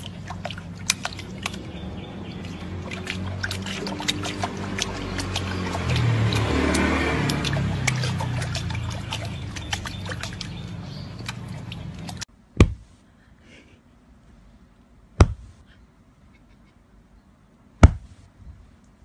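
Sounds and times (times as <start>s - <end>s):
water splashing and dripping: 0.0s - 12.8s.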